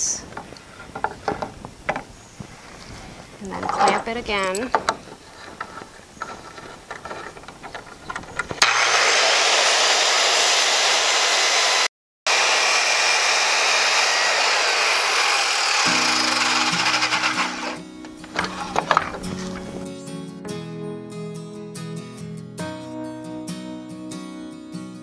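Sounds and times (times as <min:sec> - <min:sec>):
circular saw cutting wood: 0:08.6 - 0:19.8.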